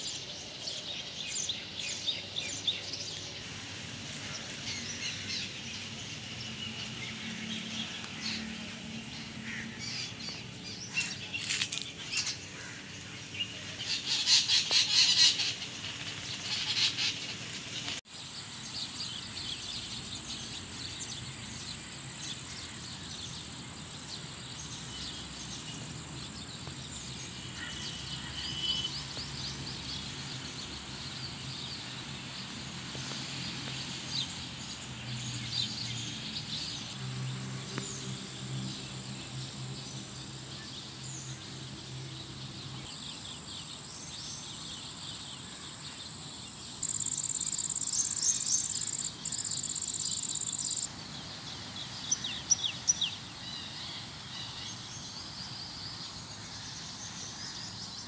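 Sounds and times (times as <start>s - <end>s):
birds chirping: 42.4s - 58.0s.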